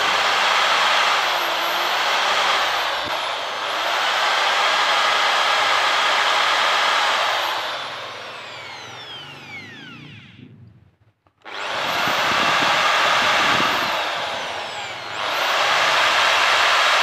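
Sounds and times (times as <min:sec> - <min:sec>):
electric drill boring into steel: 0:00.0 - 0:10.6, 0:11.4 - 0:17.0.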